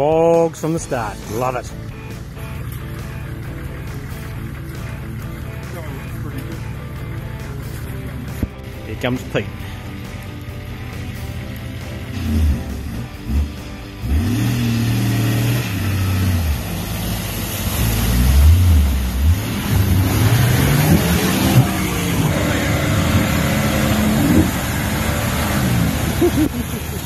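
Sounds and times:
car engine revving hard: 12.0s - 27.0s.

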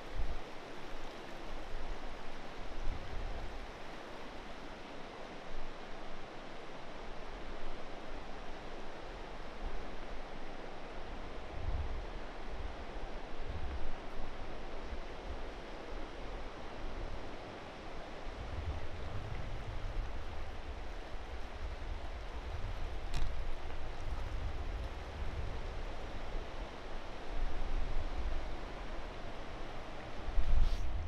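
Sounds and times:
wind rumbling on microphone: 0.0s - 4.7s, 11.1s - 31.0s.

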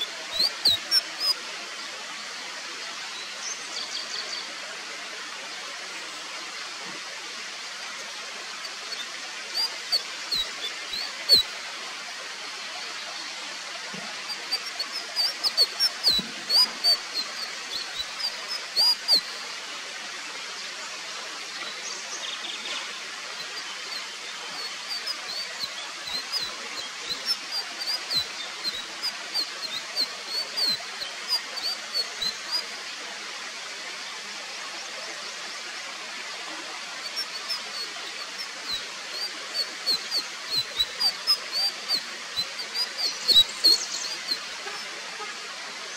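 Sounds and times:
bird high chirps: 0.0s - 1.4s, 8.6s - 11.5s, 14.3s - 19.4s, 23.4s - 32.7s, 37.1s - 44.8s
background hiss: 0.0s - 45.9s.

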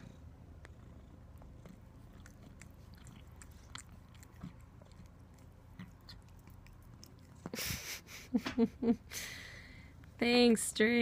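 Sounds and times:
cat tongue licking skin: 1.7s - 7.6s.

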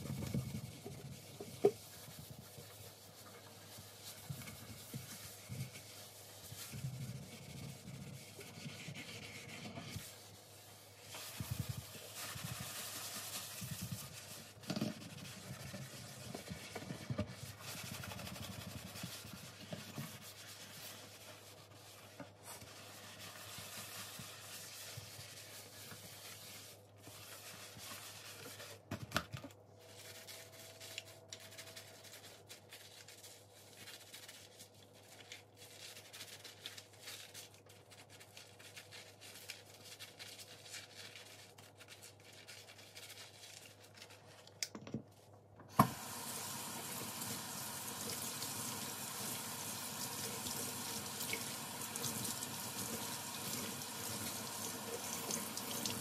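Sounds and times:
scrubbing against a surface: 0.0s - 28.9s.

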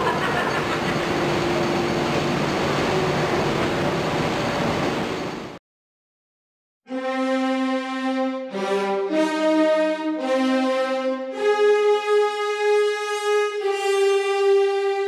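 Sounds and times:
factory machinery hum: 0.0s - 5.6s.

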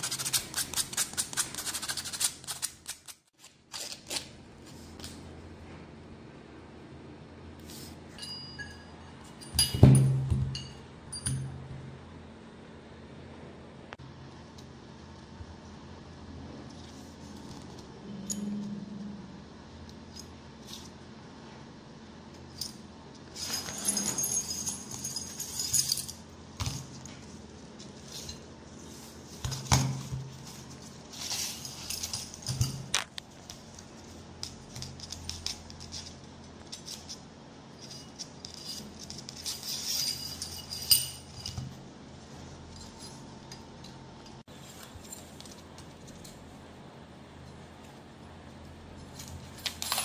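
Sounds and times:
small metal parts clinking: 22.4s - 27.1s, 31.1s - 33.1s, 37.8s - 41.8s.

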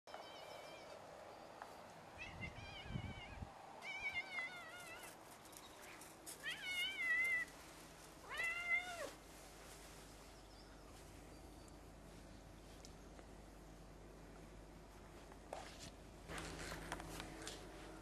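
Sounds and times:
cat meowing: 2.2s - 5.2s, 8.2s - 9.2s.

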